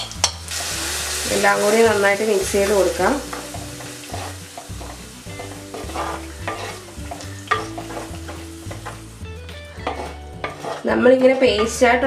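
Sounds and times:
paste sizzling in oil: 0.0 - 11.0
spatula scraping clay pot: 5.7 - 6.8, 9.8 - 11.8.

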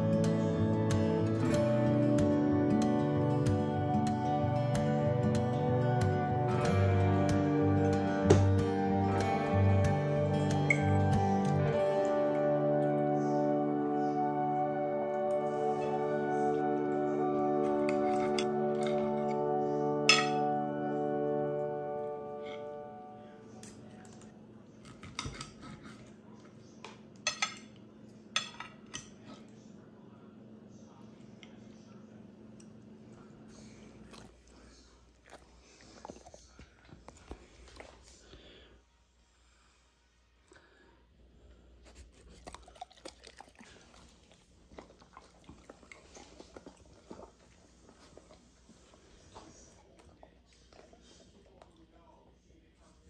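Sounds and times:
cutlery clinking on plate: 20.1 - 20.5, 24.9 - 25.7, 27.2 - 27.8, 28.4 - 29.2
dog chewing and crunching: 33.6 - 38.2, 41.8 - 52.1.

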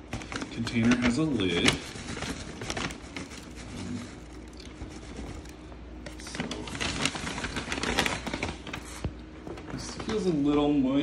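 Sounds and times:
dirt pouring into plastic tub: 0.0 - 9.1
bag rustling and crinkling: 0.0 - 10.3.

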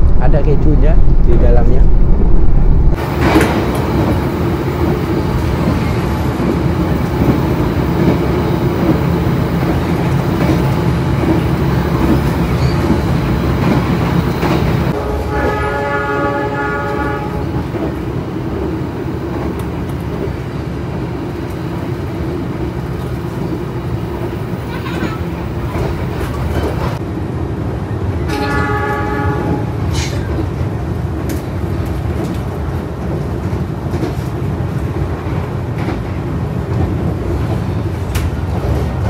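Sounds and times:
train rumbling on rails: 0.0 - 39.0
train horn: 14.9 - 17.6, 28.3 - 29.9.

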